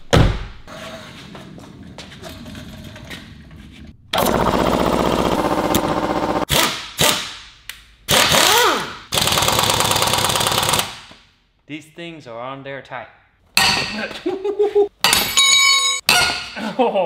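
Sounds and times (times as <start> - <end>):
impact wrench hammering: 13.6 - 14.0.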